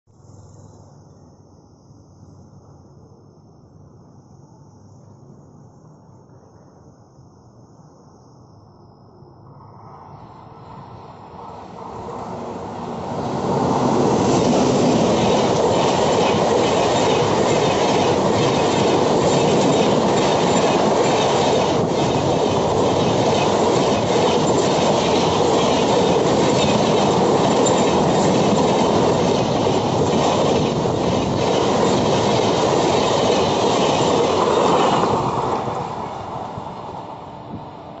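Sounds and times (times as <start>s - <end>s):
train wheels rumbling on rails: 10.7s - 38.0s.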